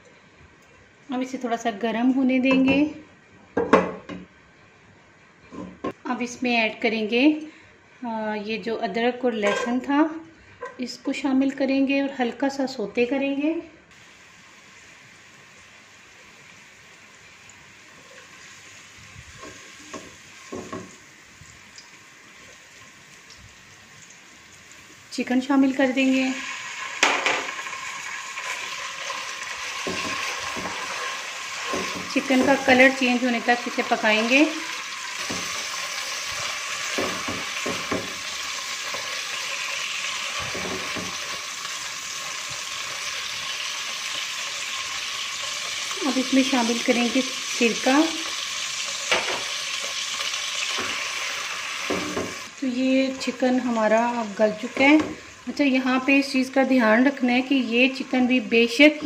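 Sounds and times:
garlic sizzling in hot oil: 0:13.9 - 0:59.0
spatula knocking and scraping pan: 0:19.4 - 0:21.0, 0:29.8 - 0:33.0, 0:35.2 - 0:35.8, 0:36.8 - 0:39.2, 0:40.4 - 0:41.4, 0:51.8 - 0:52.5
spatula scraping pan: 0:29.7 - 0:33.0.

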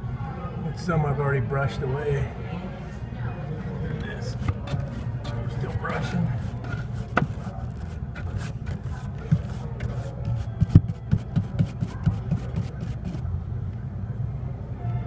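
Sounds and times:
brush scratching metal fins: 0:04.3 - 0:13.2.

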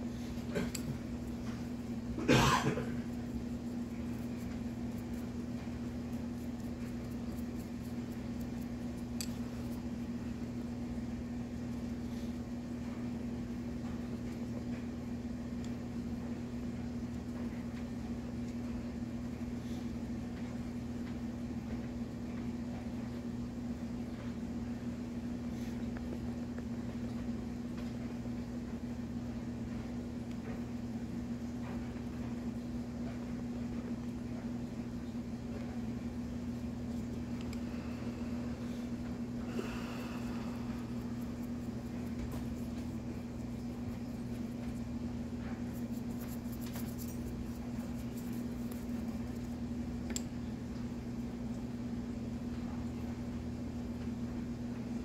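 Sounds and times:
steady low hum: 0:00.0 - 0:55.0
person coughing: 0:00.5 - 0:01.0, 0:02.2 - 0:03.1.

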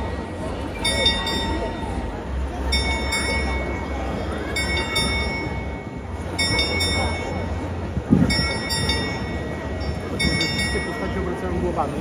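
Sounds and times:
crowd murmuring: 0:00.0 - 0:12.0
clock bell ringing: 0:00.8 - 0:01.8, 0:02.7 - 0:07.7, 0:08.3 - 0:11.4.

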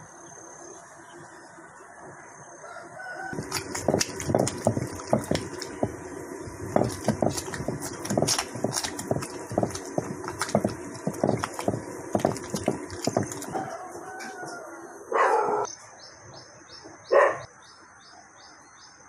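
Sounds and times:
quiet outdoor ambience: 0:00.0 - 0:19.0
stone pestle knocking and scraping: 0:03.4 - 0:13.6.

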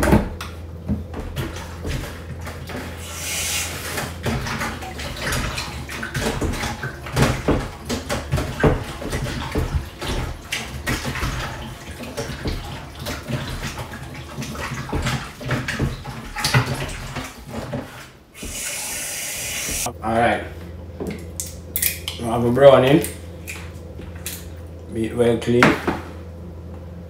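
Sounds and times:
tap water running and splashing: 0:00.0 - 0:19.9.

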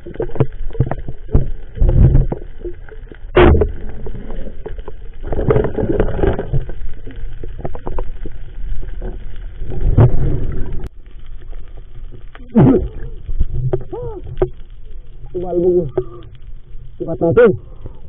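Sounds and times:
muffled underwater sloshing and rushing: 0:00.0 - 0:18.0.

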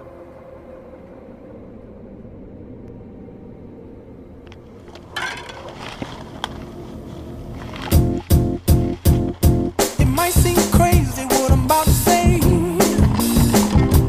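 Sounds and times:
tyre and trail noise: 0:04.5 - 0:14.0
music with heavy beat: 0:08.2 - 0:14.0.

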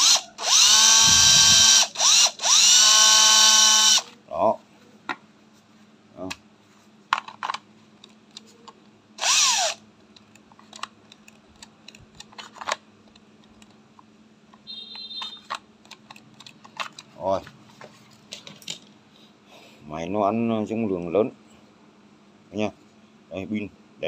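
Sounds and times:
cordless drill spinning: 0:00.0 - 0:04.1, 0:09.2 - 0:09.8.

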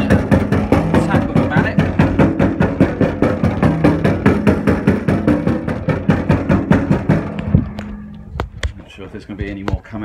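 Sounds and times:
mallet knocking on steel radiator: 0:00.0 - 0:07.5.

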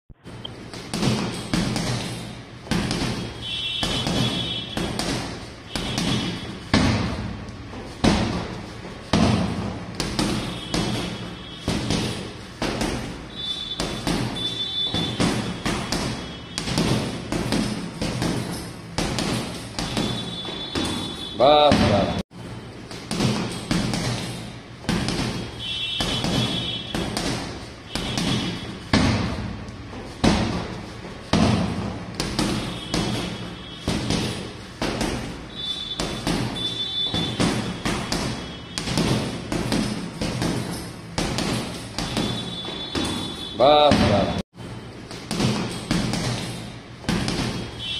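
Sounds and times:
punches on heavy bag: 0:00.8 - 0:07.4, 0:08.0 - 0:13.2, 0:23.0 - 0:29.6, 0:30.2 - 0:35.4.

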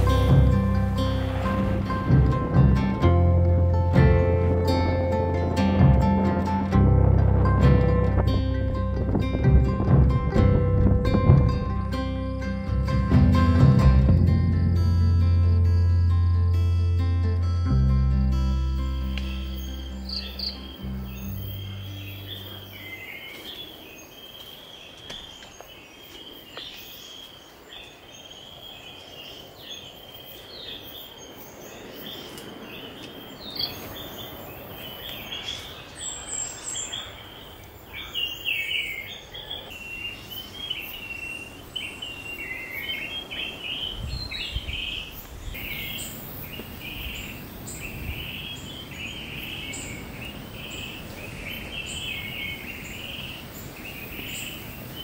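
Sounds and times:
birds chirping: 0:00.0 - 0:12.7, 0:18.6 - 0:55.0
soft low thuds: 0:05.6 - 0:14.6
insects calling: 0:18.8 - 0:55.0.

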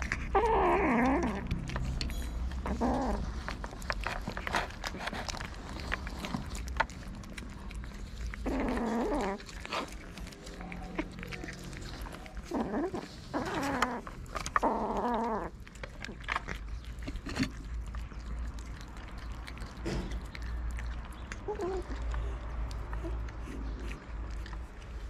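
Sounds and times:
cats eating: 0:00.0 - 0:25.0
cats meowing: 0:08.2 - 0:16.6, 0:21.3 - 0:23.3.

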